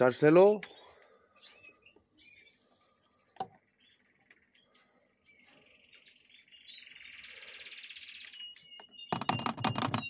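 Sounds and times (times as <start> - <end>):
canaries chirping: 0.0 - 10.0.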